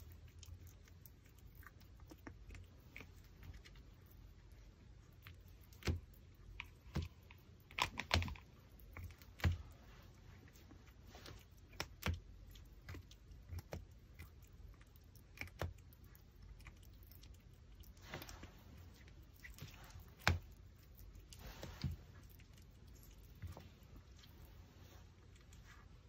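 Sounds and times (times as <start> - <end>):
dog teeth cracking on bone: 11.7 - 17.5.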